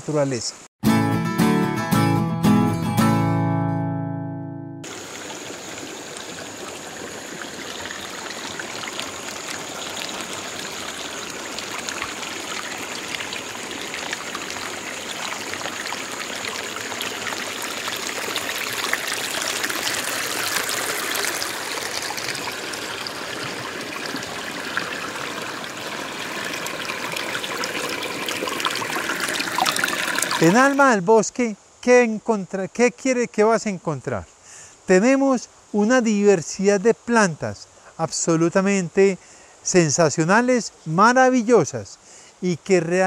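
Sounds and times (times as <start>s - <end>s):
stream flowing over rocks: 4.8s - 31.0s.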